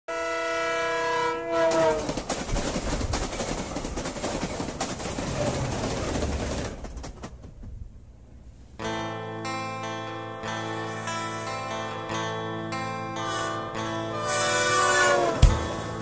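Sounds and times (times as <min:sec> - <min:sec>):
train horn chord: 0:00.1 - 0:02.1, 0:12.9 - 0:16.0
train wheels clattering on rails: 0:01.7 - 0:07.9.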